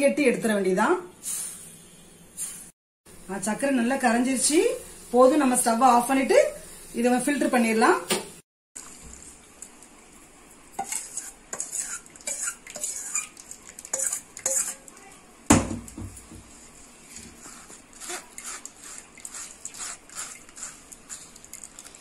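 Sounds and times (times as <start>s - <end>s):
steel spoon scraping pan: 10.8s - 14.9s, 17.4s - 21.3s.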